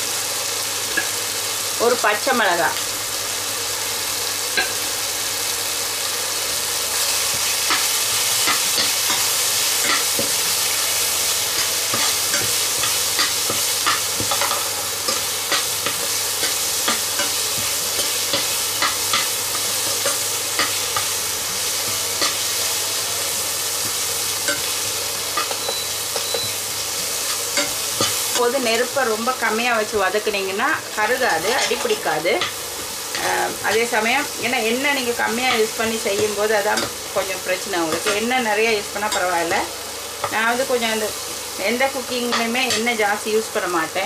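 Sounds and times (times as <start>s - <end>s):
vegetables sizzling in oil: 0.0s - 44.0s
metal spoon scraping and tapping pan: 11.6s - 21.1s.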